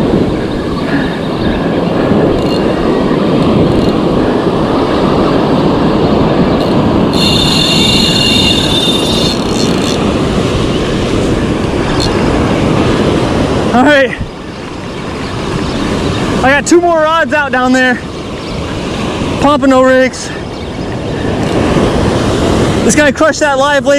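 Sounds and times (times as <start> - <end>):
surf: 0.0 - 23.9
wind noise: 0.0 - 23.9
fishing reel cranking: 2.3 - 2.7, 3.7 - 4.0, 6.6 - 10.1
high multi-tone whine: 6.5 - 10.1.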